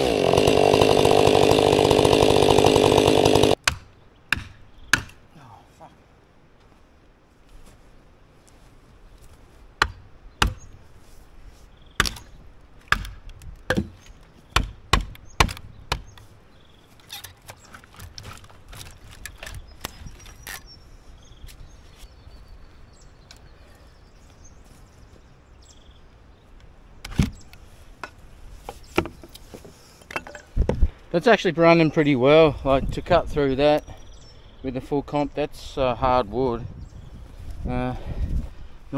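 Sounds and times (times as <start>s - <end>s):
hatchet chopping log: 0.0s - 5.2s, 9.8s - 10.7s, 12.0s - 12.3s, 12.9s - 16.1s.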